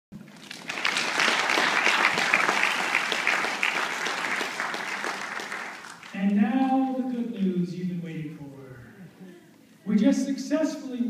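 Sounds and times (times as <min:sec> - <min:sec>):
audience applauding: 0:00.2 - 0:06.3.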